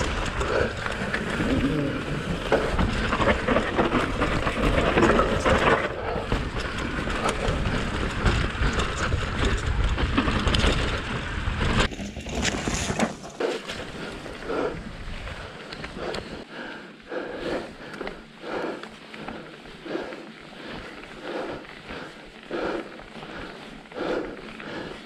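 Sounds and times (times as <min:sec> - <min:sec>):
bike rattling and knocking: 0:00.0 - 0:25.0
bike tyre noise: 0:00.0 - 0:25.0.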